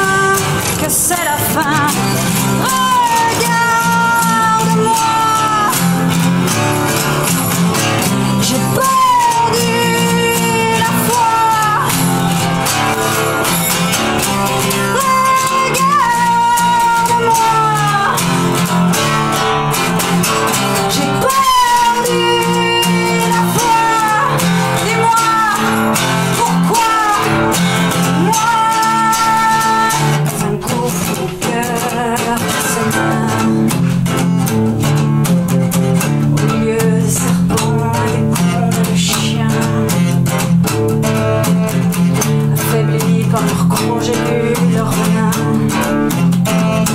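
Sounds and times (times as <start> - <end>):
acoustic guitar playing: 0.0 - 46.9
woman singing slow folk song: 0.0 - 46.9.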